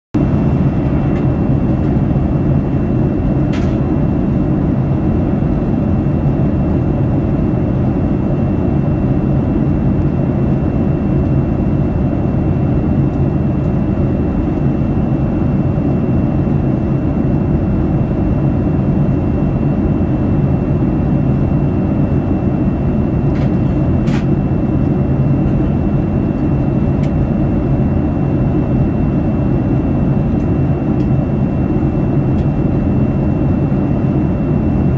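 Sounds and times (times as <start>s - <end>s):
airplane cabin engine drone: 0.2s - 34.9s.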